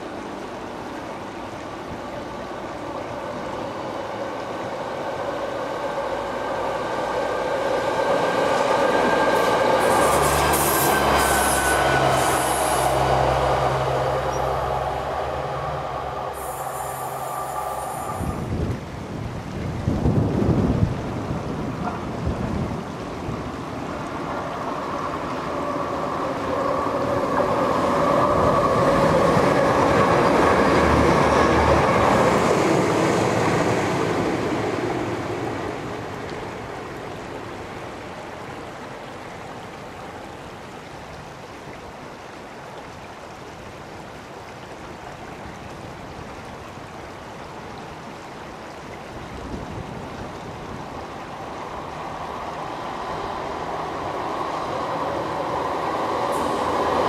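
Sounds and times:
diesel train engine drone: 0:00.0 - 0:19.0, 0:23.7 - 0:38.2, 0:51.2 - 0:57.0
diesel train approaching: 0:00.0 - 0:19.5, 0:23.4 - 0:38.9, 0:50.9 - 0:57.0.

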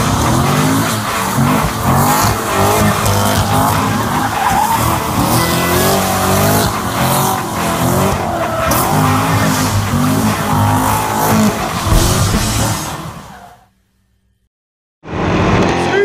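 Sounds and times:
car engine revving: 0:00.0 - 0:13.7
tyres squealing: 0:00.5 - 0:13.6.

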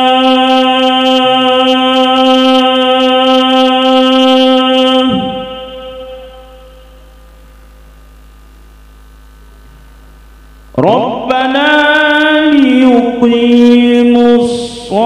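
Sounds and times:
man chanting through a microphone: 0:00.0 - 0:06.8, 0:10.7 - 0:15.0
faint electrical hum: 0:00.0 - 0:15.0.

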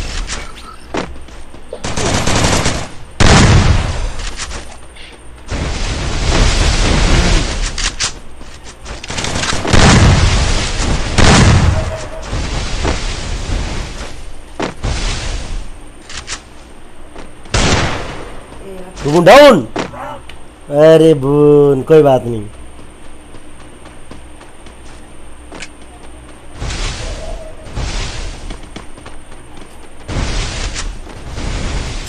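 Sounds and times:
video game gunfire bursts: 0:01.8 - 0:03.8
heavy booms: 0:01.9 - 0:04.2, 0:05.5 - 0:07.7, 0:09.6 - 0:15.8, 0:26.5 - 0:28.7, 0:30.0 - 0:32.0.

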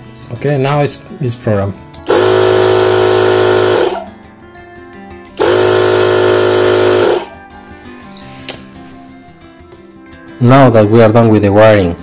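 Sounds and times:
air compressor running: 0:02.1 - 0:04.1, 0:05.4 - 0:07.4.

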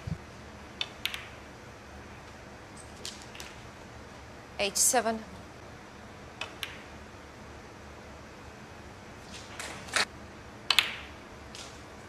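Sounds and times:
snooker balls clicking: 0:00.8 - 0:01.4, 0:06.4 - 0:07.0, 0:10.7 - 0:11.8.

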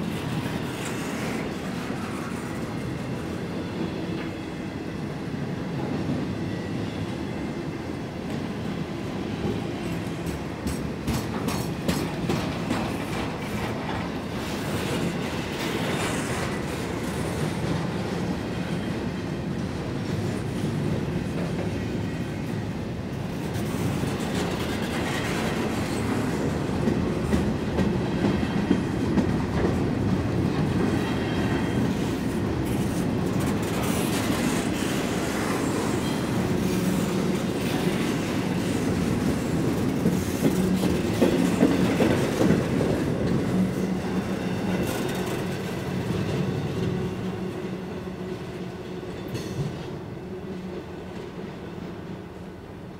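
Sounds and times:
train wheels rumbling on rails: 0:00.0 - 0:52.9.

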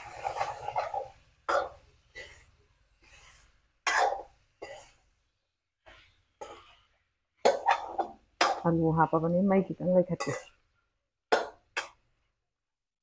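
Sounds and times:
wooden spatula scraping pan: 0:00.0 - 0:05.2, 0:05.8 - 0:08.6.

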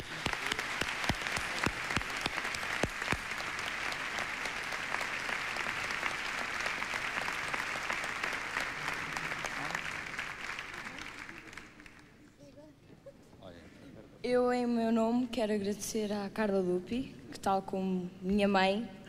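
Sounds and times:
audience applauding: 0:00.0 - 0:12.2
loud sharp claps: 0:00.0 - 0:12.2.

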